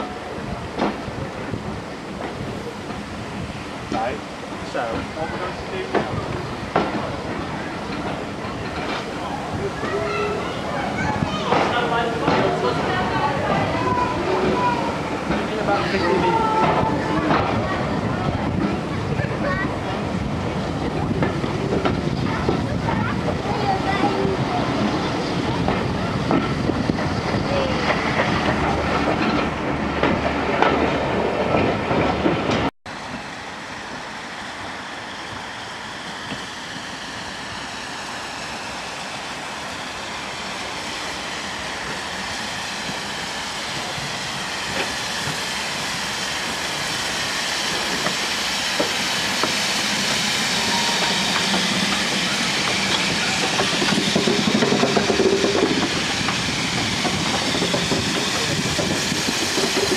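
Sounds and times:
steam locomotive hissing: 0.0 - 59.9
wheels on rails: 41.8 - 59.9.

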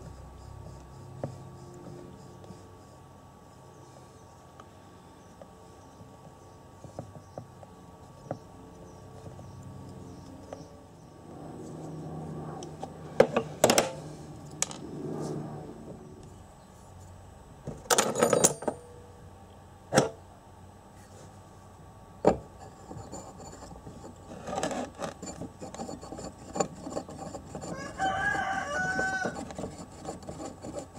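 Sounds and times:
metal tools clanking on workbench: 17.9 - 18.8.

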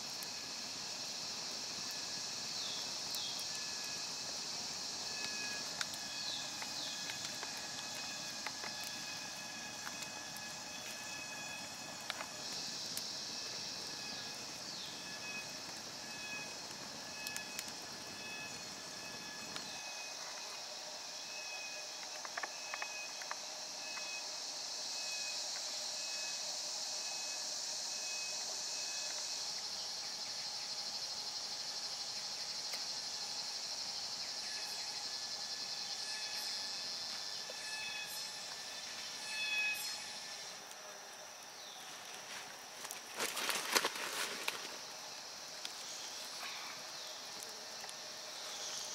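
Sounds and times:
wood fire crackling: 0.0 - 24.4, 41.8 - 48.9
insects droning: 0.0 - 48.9.

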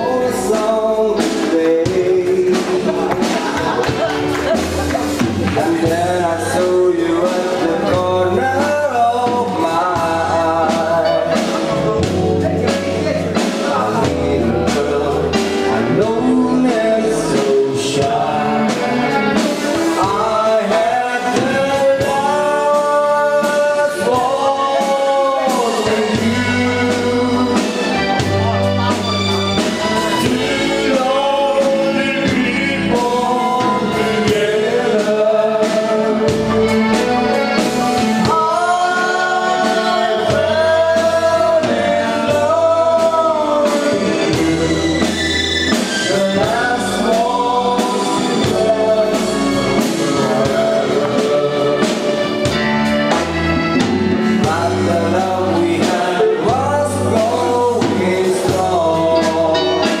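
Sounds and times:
lead singer singing: 0.0 - 60.0
live dance band: 0.0 - 60.0.

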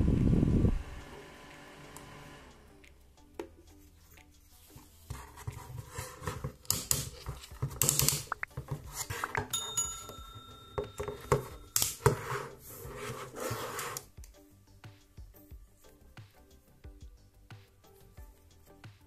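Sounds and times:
plastic fan being handled: 5.1 - 10.0.

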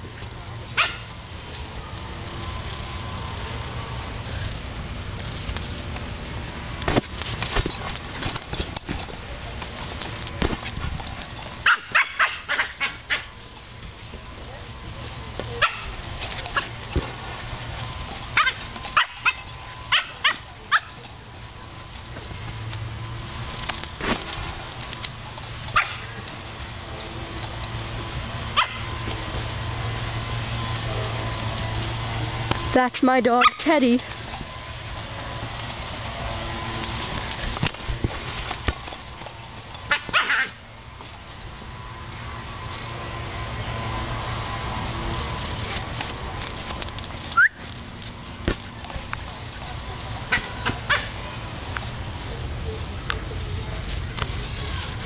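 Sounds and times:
dog barking: 0.8 - 1.1, 11.6 - 13.3, 15.6 - 15.9, 18.4 - 20.9, 25.8 - 26.1, 28.6 - 28.8, 33.4 - 33.6, 39.9 - 40.5, 50.3 - 51.1.

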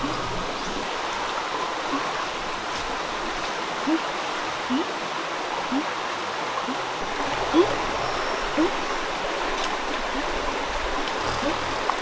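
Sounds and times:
forest stream rushing: 0.0 - 12.0.

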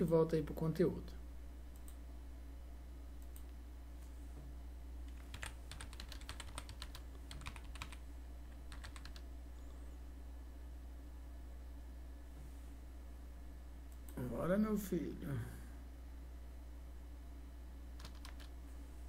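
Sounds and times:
low steady hum: 0.0 - 19.0
typing on computer keyboard: 5.1 - 8.0, 8.6 - 9.2, 18.0 - 18.5.

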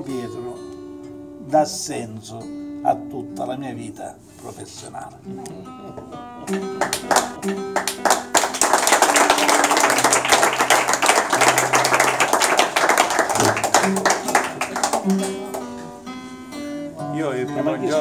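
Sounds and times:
acoustic guitar strumming: 0.0 - 18.0
group clapping: 6.5 - 16.0.

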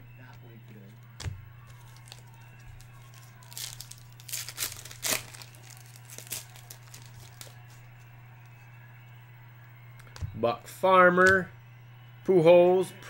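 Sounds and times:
steady low hum: 0.0 - 13.0
foil pack tearing and crinkling: 1.7 - 7.9.

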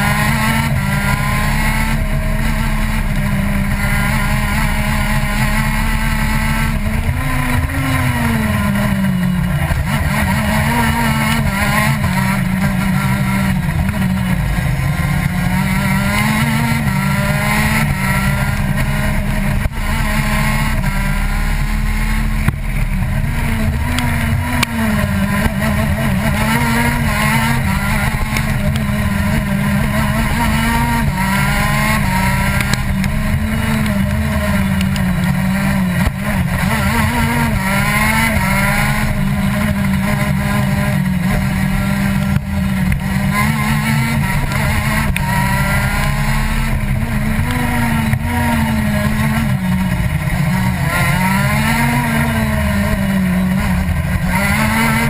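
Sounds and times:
kart engine revving: 0.0 - 55.0.

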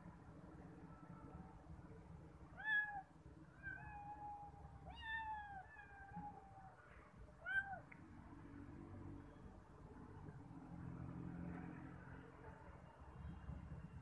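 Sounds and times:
cats meowing: 2.6 - 6.8, 7.4 - 8.0.

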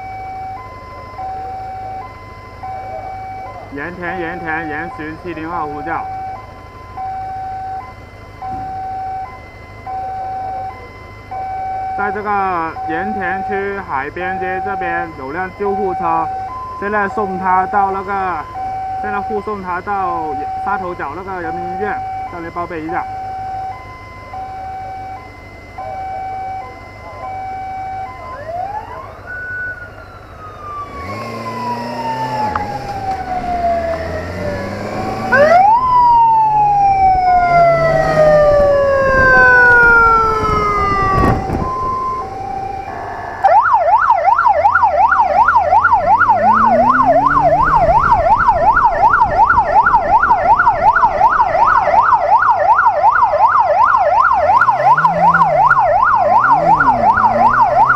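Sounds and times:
electronic siren wailing: 0.0 - 57.9
motorcycle engine revving: 30.7 - 52.3, 53.7 - 57.9.

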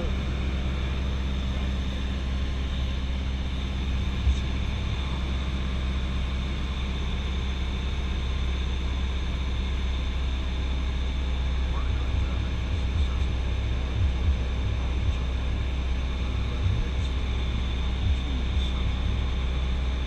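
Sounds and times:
aircraft engine and propeller droning: 0.0 - 20.0.

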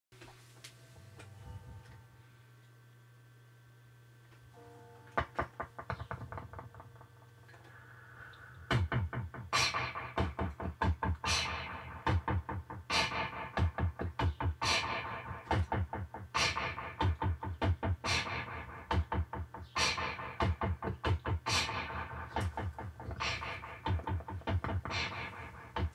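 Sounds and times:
low steady hum: 0.2 - 25.9
beatboxing into microphone: 7.7 - 25.9.

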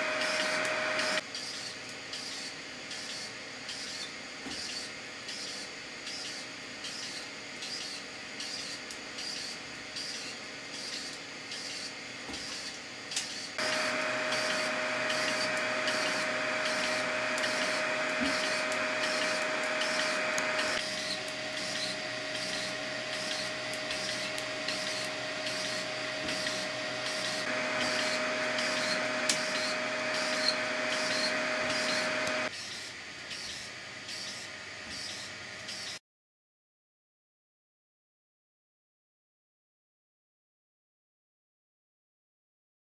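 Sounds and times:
stepper motor strokes: 0.0 - 1.2, 13.3 - 32.8.

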